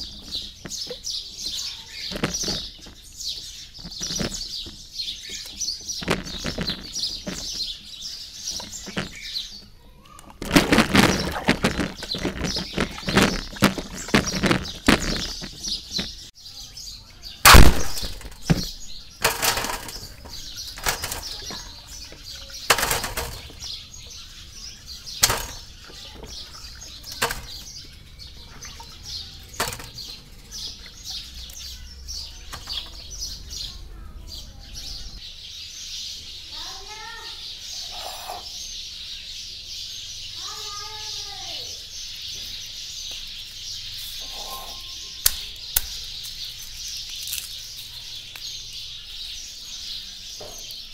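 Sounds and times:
birds chirping: 0:00.0 - 0:50.9
water splashing in a tub: 0:19.2 - 0:31.7.

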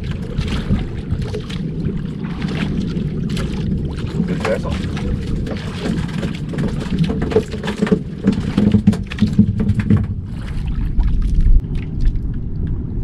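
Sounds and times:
boat engine running: 0:00.0 - 0:13.0
wind noise on microphone: 0:00.0 - 0:13.0
knocks and rattles: 0:05.6 - 0:10.3.

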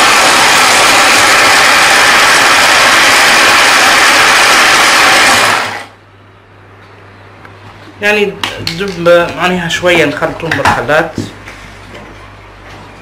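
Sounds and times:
electric chopper motor running: 0:00.0 - 0:06.0.

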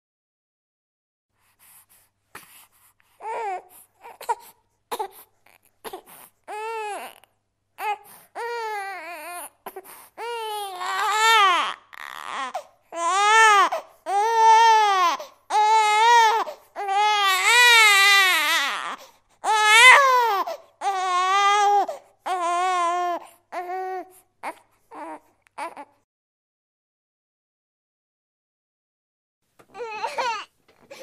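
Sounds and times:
baby crying: 0:03.2 - 0:26.1, 0:29.7 - 0:31.0.

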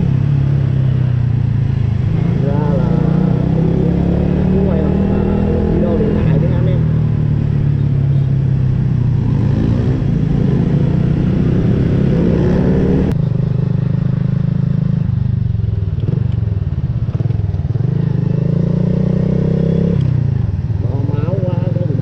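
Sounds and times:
motorcycle engine revving: 0:00.0 - 0:22.0.

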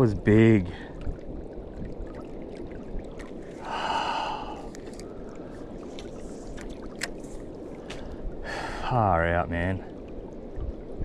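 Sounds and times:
man sighing: 0:03.6 - 0:04.7.

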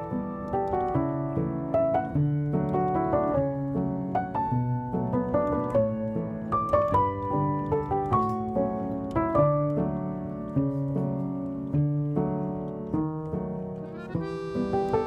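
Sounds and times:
gentle piano melody: 0:00.0 - 0:15.0.

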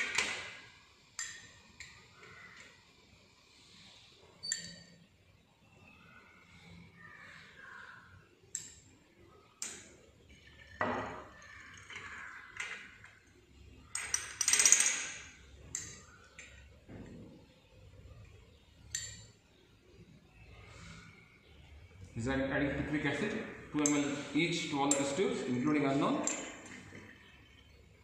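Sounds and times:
glass pipette clinking test tubes: 0:23.8 - 0:27.9.

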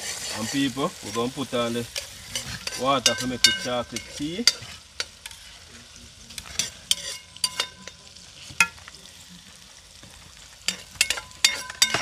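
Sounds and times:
food cooking hiss: 0:00.0 - 0:12.0
metal cookware clanking: 0:01.9 - 0:05.5, 0:06.4 - 0:08.9, 0:10.6 - 0:12.0.

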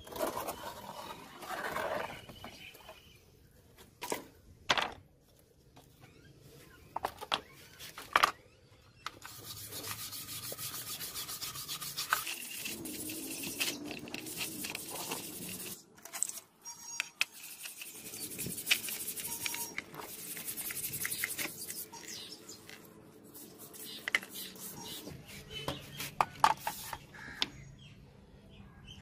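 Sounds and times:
stick scraping knife blade: 0:09.2 - 0:22.3.

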